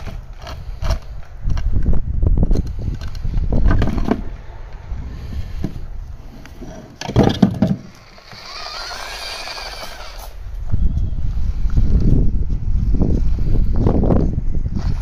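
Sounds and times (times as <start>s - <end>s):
rc car chassis clattering: 6.9s - 10.4s
electric motor whine: 7.9s - 11.7s.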